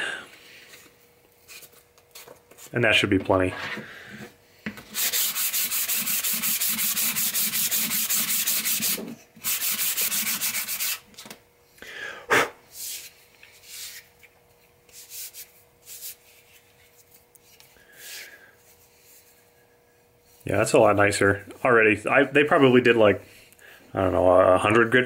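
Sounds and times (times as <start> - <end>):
sandpaper scrubbing wood: 4.9 - 11.0.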